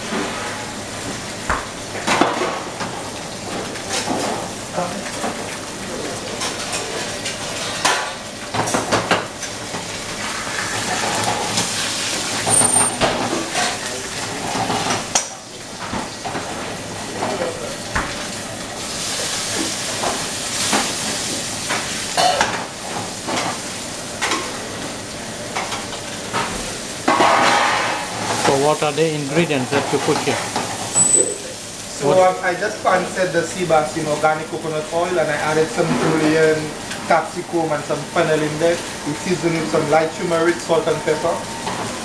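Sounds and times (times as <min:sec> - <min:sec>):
fish sizzling in a frying pan: 0:00.0 - 0:42.0
metal tongs clinking on pan: 0:30.9 - 0:31.4.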